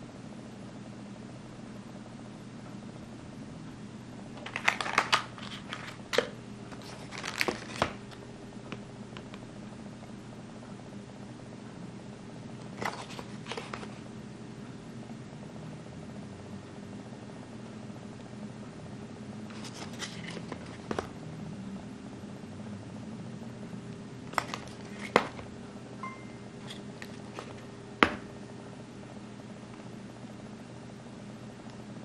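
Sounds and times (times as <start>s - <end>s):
steady low hum: 0.0s - 32.0s
cardboard box crackling: 6.8s - 8.0s.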